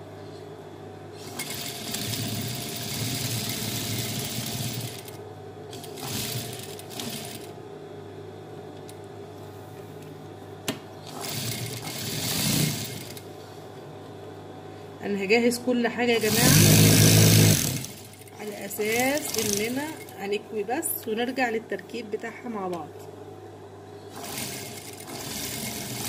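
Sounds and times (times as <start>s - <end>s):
low steady hum: 0.0s - 26.0s
sewing machine stitching: 1.2s - 7.5s, 11.0s - 13.2s, 16.2s - 20.1s, 24.1s - 26.0s.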